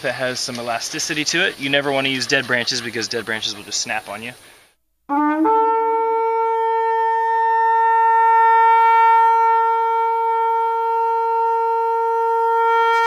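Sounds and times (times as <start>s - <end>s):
long wind instrument note: 5.1s - 13.0s.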